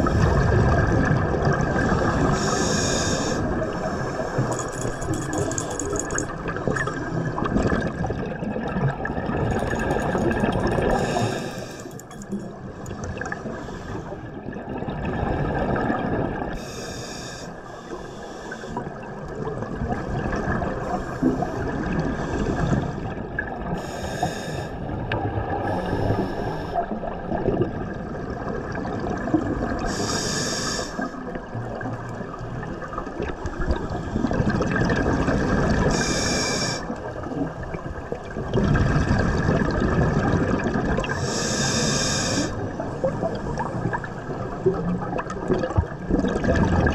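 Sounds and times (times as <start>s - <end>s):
regulator hissing breaths: 2.4s - 4.5s, 10.9s - 12.1s, 16.6s - 18.8s, 23.8s - 24.8s, 25.7s - 26.8s, 29.9s - 31.2s, 35.9s - 36.9s, 41.2s - 42.6s.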